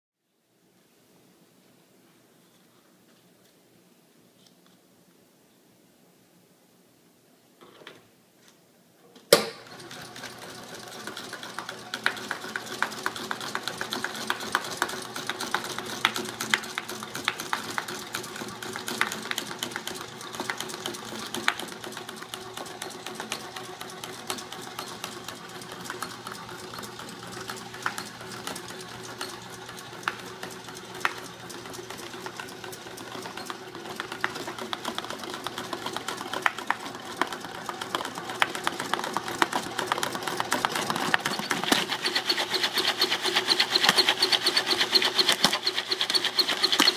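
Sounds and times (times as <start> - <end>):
popcorn maker motor rattling: 9.4 - 46.9.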